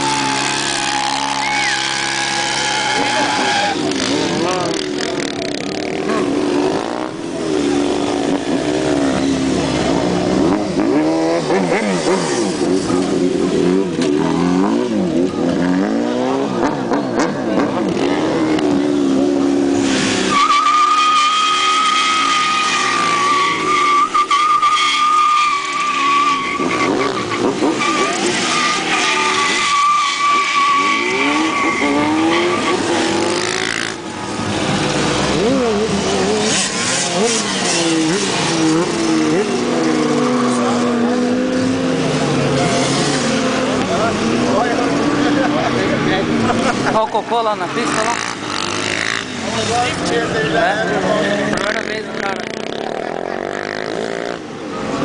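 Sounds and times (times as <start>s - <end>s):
tyre squeal: 0.0s - 4.2s, 20.1s - 33.9s
motorcycle engine revving: 0.0s - 24.8s, 26.3s - 55.0s.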